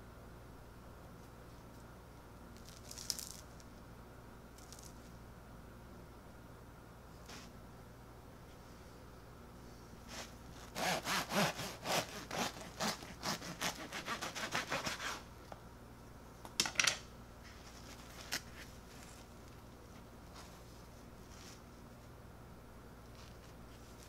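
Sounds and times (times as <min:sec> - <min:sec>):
knife sawing bread crust: 0:10.1 - 0:15.3.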